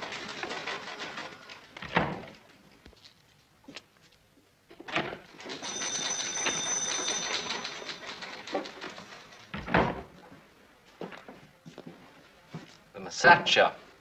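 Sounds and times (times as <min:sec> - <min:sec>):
rapid mechanical clattering: 0:00.0 - 0:02.5, 0:05.0 - 0:10.0
door opening: 0:01.6 - 0:02.4, 0:04.7 - 0:10.2
door shutting with thump: 0:01.8 - 0:02.3, 0:09.5 - 0:10.1.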